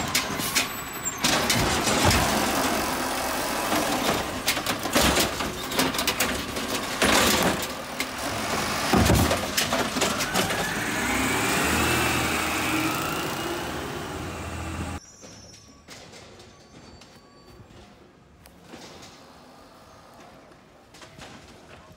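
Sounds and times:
cart knocks and bangs: 0.0s - 2.8s, 3.6s - 11.2s
engine and hydraulics whine: 0.0s - 5.8s, 7.6s - 15.0s
diesel engine running: 0.0s - 15.0s
street ambience: 0.0s - 21.9s.

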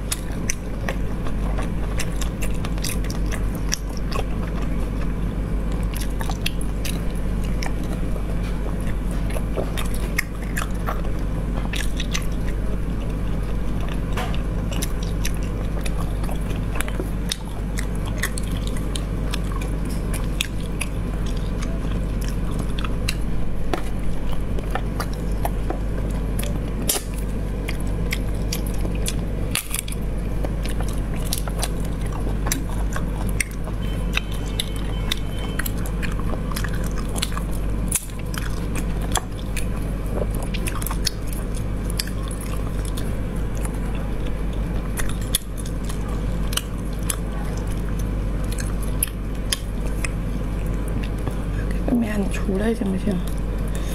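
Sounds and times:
wet chewing and sucking: 0.0s - 51.9s
steady low hum: 0.0s - 53.9s.

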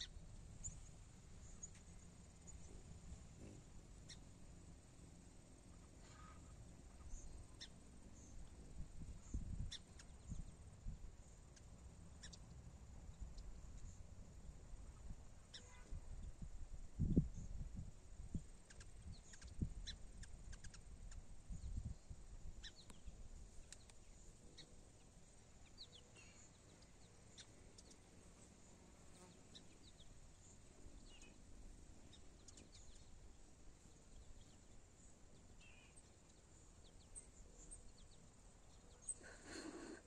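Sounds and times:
bird chirps: 3.4s - 4.3s, 9.2s - 10.6s, 11.5s - 12.5s, 15.0s - 16.3s, 18.6s - 28.5s, 29.1s - 33.2s, 33.8s - 40.0s.

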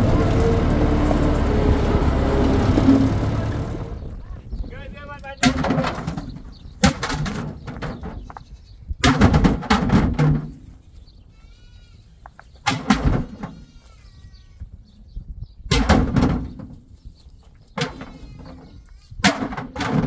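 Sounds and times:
rocks clattering into wooden trailer: 5.4s - 8.4s, 9.0s - 10.6s, 19.2s - 20.0s
faint bleating: 11.3s - 12.1s, 13.5s - 14.7s, 18.1s - 19.2s.

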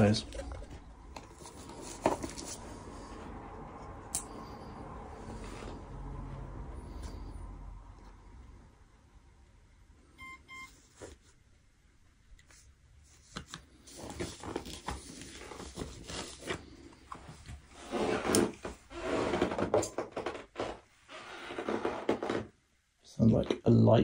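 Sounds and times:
short electronic beeps: 10.2s - 10.7s.

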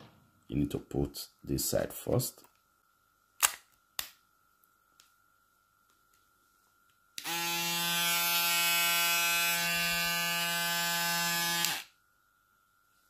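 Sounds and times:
electric shaver motor humming: 7.2s - 11.9s.

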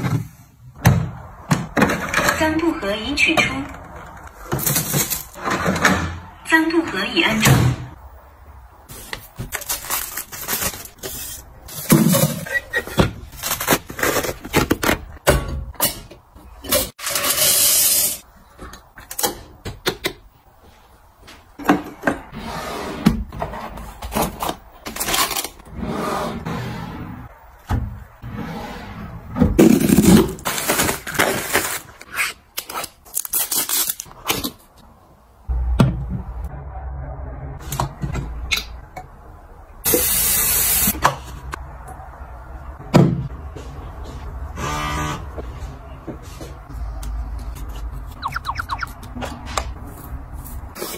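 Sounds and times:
drawer sliding: 22.3s - 27.2s.

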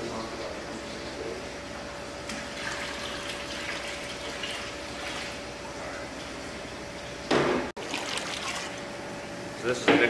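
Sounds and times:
water pouring and splashing: 7.8s - 8.8s.

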